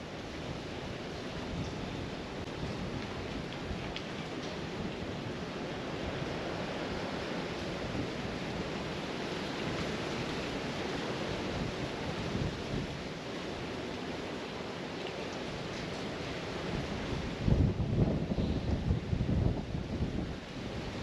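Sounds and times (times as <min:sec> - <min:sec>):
wind on microphone: 0:16.7 - 0:21.0.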